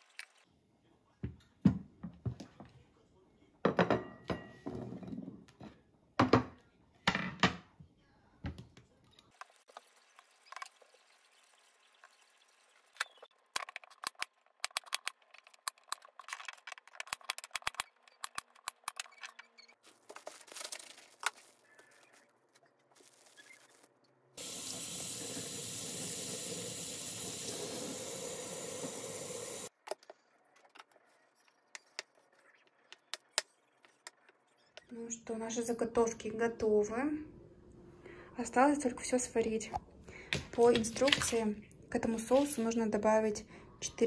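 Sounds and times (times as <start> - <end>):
plastic package crinkling: 19.8 - 24.0
kitchen tap running: 24.4 - 29.7.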